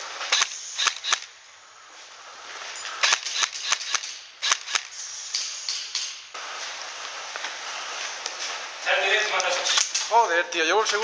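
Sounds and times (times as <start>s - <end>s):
airsoft gun shots: 0.2s - 1.3s, 3.0s - 6.3s.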